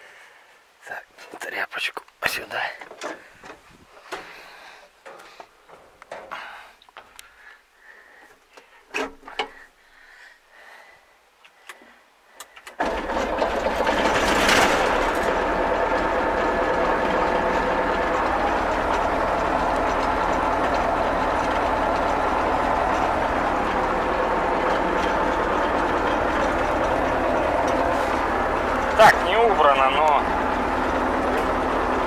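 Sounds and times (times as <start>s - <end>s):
faint clicks: 11.4s - 12.8s
diesel engine starting and idling: 12.8s - 32.0s.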